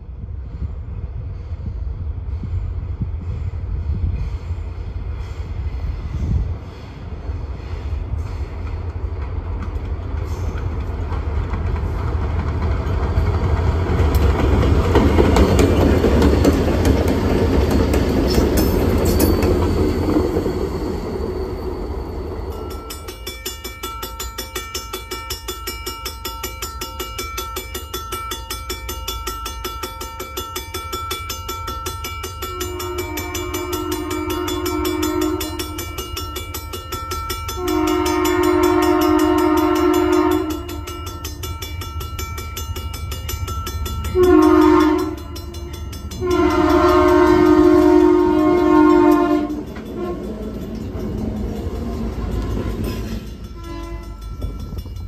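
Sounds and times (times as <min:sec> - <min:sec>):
rail noise: 0:00.0 - 0:55.0
crossing warning bell ringing: 0:12.0 - 0:55.0
distant locomotive horn: 0:32.4 - 0:36.1, 0:37.5 - 0:41.0, 0:44.1 - 0:50.6, 0:51.8 - 0:54.2.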